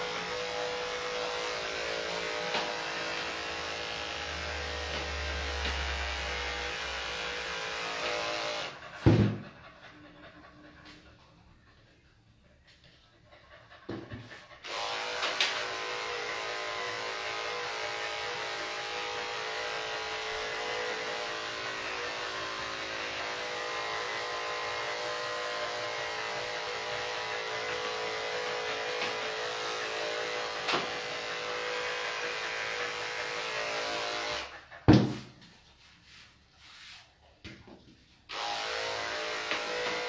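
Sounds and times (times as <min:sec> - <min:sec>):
electric clipper buzzing: 0:00.0 - 0:08.7, 0:14.6 - 0:34.5, 0:38.3 - 0:40.0.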